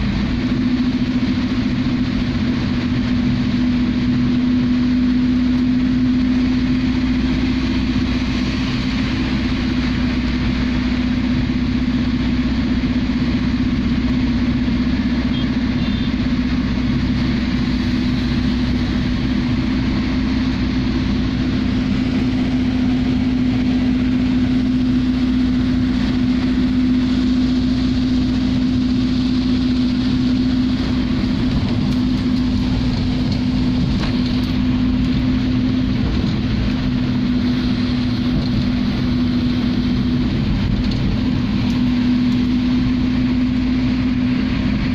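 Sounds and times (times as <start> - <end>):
car engine and road hum: 0.0 - 44.9
rain and tyre spray hiss: 6.1 - 14.0.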